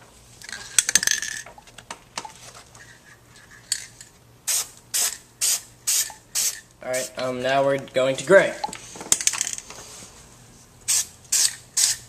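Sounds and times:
spray paint hissing: 4.5 - 7.1, 10.9 - 12.0
spray can rattling: 10.9 - 12.0.

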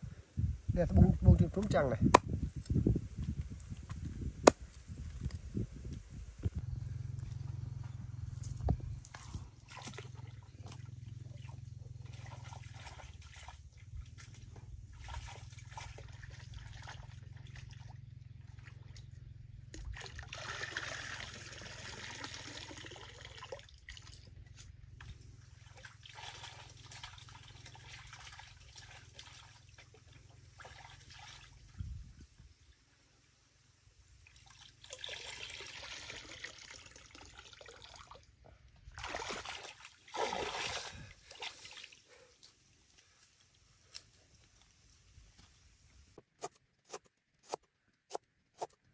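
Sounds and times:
water sloshing and trickling: 8.4 - 32.4, 34.2 - 45.6
pan swishing in water: 38.9 - 42.0.

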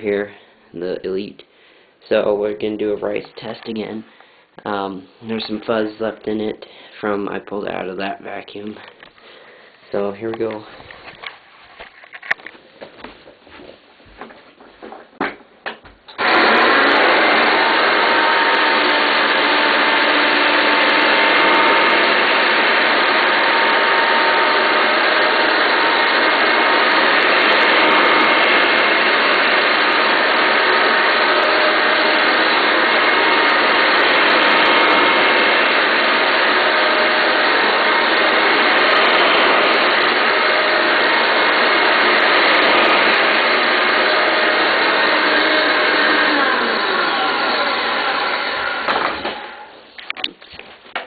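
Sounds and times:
vacuum cleaner motor whine: 16.2 - 49.8.

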